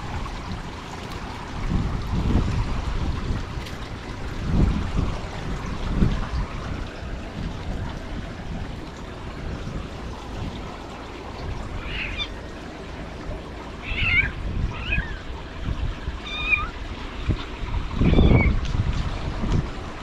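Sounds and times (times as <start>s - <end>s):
wind rumbling on microphone: 0.0s - 20.0s
kitten mewing: 11.8s - 12.3s, 13.8s - 15.2s.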